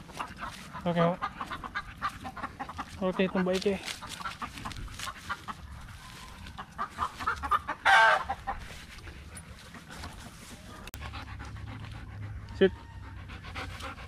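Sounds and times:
chickens clucking: 0.0s - 11.5s
chicken squawk: 4.1s - 8.6s.

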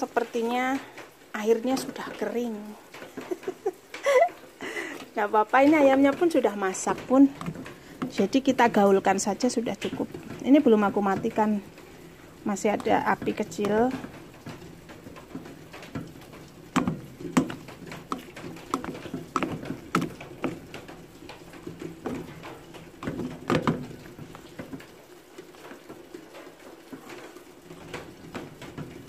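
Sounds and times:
spoon stirring rice in metal pot: 6.2s - 11.7s, 12.6s - 24.8s.

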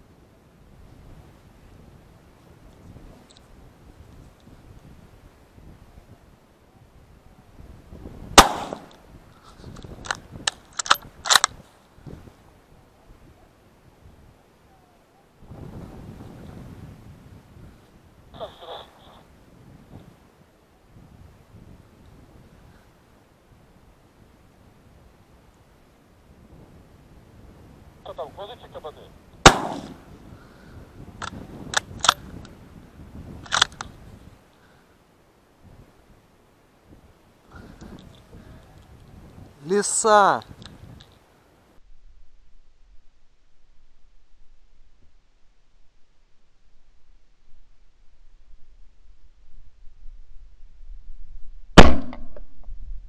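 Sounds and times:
gunshot with echo: 8.4s - 8.9s, 29.4s - 30.0s, 51.8s - 52.4s
sharp knock: 51.8s - 52.4s.

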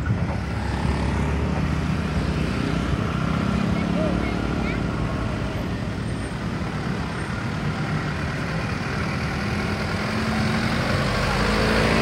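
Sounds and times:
diesel truck engine rumbling: 0.0s - 12.0s.

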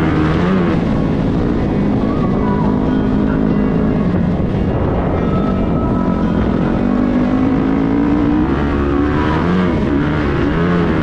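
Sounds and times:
dirt bike engine revving: 6.1s - 11.0s.

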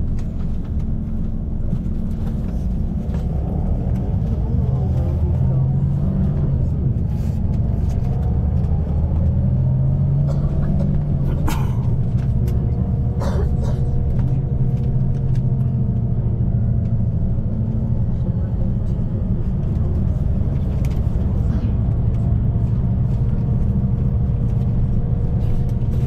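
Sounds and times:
bus engine and road rumble: 0.0s - 26.0s.

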